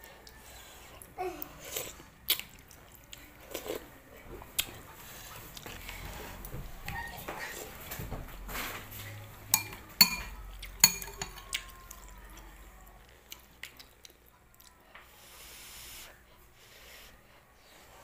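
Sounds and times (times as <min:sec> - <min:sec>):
wet eating and sipping sounds: 0:00.0 - 0:07.9
metal spoon clinking against bowl: 0:09.5 - 0:11.6.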